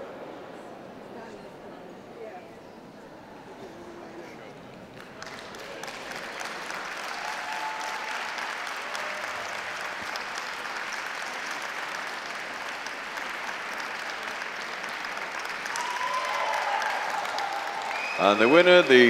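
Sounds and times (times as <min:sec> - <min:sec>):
audience clapping: 0:04.8 - 0:19.0.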